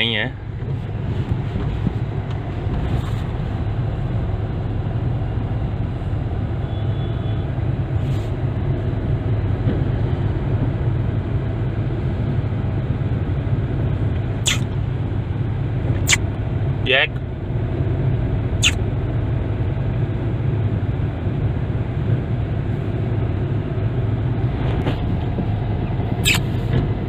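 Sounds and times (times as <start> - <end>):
car engine and road noise: 0.0 - 27.0
short sharp click: 14.5 - 14.7, 26.2 - 26.5.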